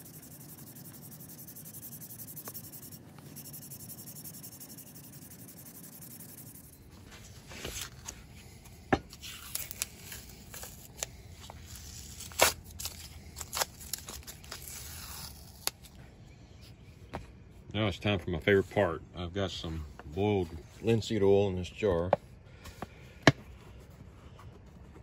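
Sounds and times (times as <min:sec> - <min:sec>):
sandpaper rubbing on wood: 0:00.0 - 0:06.8
tape ripping off metal: 0:09.1 - 0:15.9.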